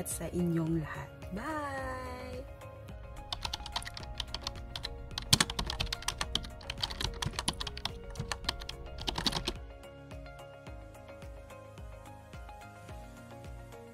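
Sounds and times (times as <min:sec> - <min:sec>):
background music: 0:00.0 - 0:13.9
keyboard typing clicks: 0:03.3 - 0:09.6.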